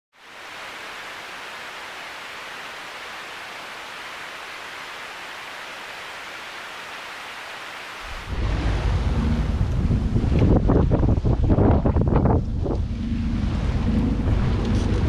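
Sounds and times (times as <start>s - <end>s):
static-like hiss: 0.2s - 10.8s
wind rumbling on microphone: 8.0s - 15.0s.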